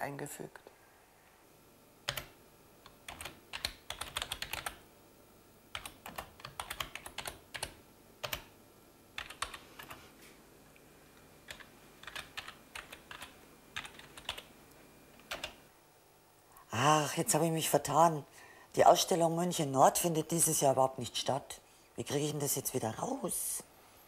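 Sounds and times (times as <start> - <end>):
typing on computer keyboard: 2.1 - 4.8, 5.7 - 8.5, 9.2 - 10.0, 11.5 - 14.5, 15.3 - 15.6.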